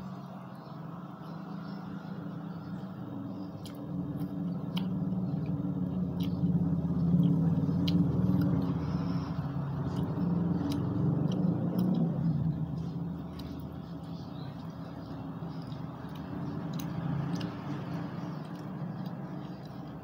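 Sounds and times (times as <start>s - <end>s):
vehicle engine passing by: 0.0s - 20.0s
mouth clicks of chewing: 3.5s - 8.8s, 9.8s - 20.0s.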